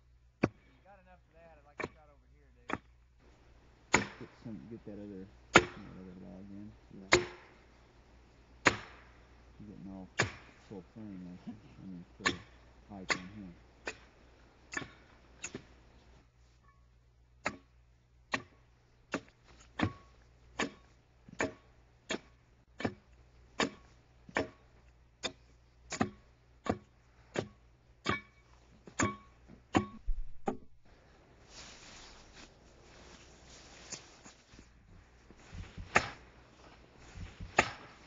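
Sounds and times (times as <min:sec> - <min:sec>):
axe chopping log: 0:03.9 - 0:04.3, 0:05.5 - 0:05.9, 0:07.1 - 0:07.6, 0:08.6 - 0:09.1, 0:10.2 - 0:10.6, 0:12.2 - 0:13.3, 0:14.7 - 0:15.7, 0:17.4 - 0:24.6, 0:25.2 - 0:30.6, 0:35.5 - 0:36.3, 0:37.2 - 0:38.0.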